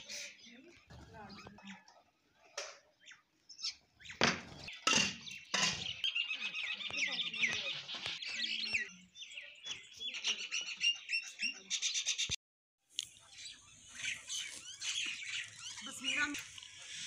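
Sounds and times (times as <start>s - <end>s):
harsh bird calls: 0.0s - 12.4s, 13.1s - 17.0s
sparrows chirping: 0.0s - 12.4s, 13.0s - 17.0s.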